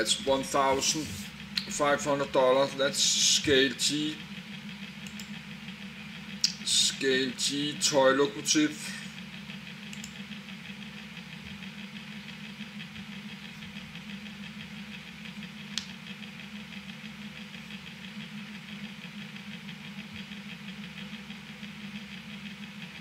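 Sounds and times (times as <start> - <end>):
machine running with fast pulse: 0.0 - 23.0
sharp click: 9.9 - 10.2.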